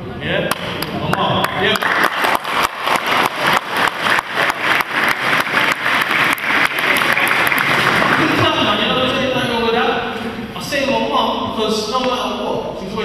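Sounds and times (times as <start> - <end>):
audience applauding: 0.8 - 8.7.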